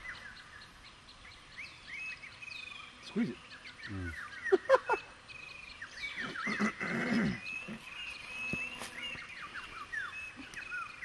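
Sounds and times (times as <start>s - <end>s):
small birds chirping: 0.0s - 11.0s
person laughing: 4.5s - 5.1s.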